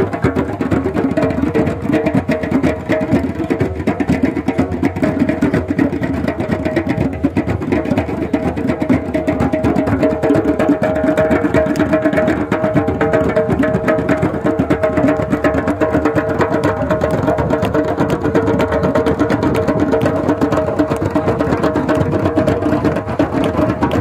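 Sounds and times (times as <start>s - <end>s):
hand drums playing: 0.0s - 24.0s.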